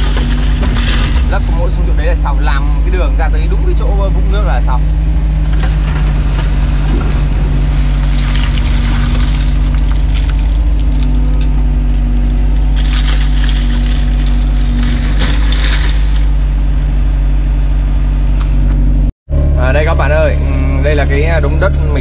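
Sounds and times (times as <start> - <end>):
soil and stones falling: 0.0 - 1.6, 5.7 - 16.6
mud splashing into water: 0.0 - 1.8, 6.7 - 16.6
excavator diesel engine running: 0.0 - 22.0.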